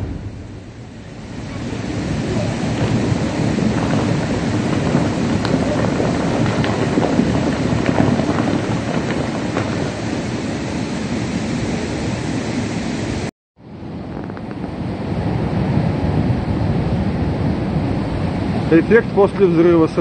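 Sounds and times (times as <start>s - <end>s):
blast: 0.0s - 13.3s
wind buffeting microphone: 0.0s - 20.0s.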